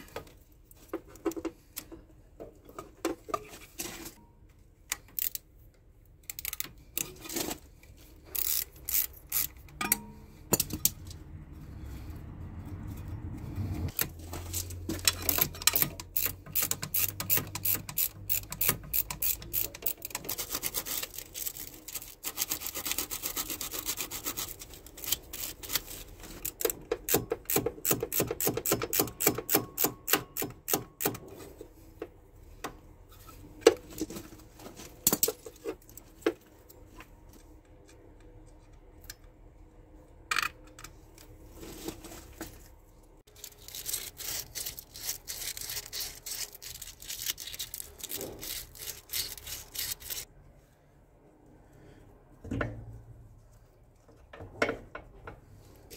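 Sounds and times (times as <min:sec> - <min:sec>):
ratchet wrench clicking: 0:05.2 - 0:05.4, 0:06.3 - 0:07.1, 0:08.4 - 0:10.0, 0:15.0 - 0:20.3, 0:26.4 - 0:31.2.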